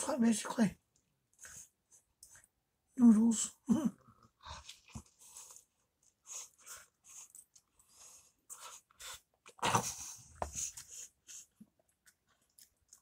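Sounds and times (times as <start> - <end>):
person chewing and slurping noodles: 4.2 - 13.0.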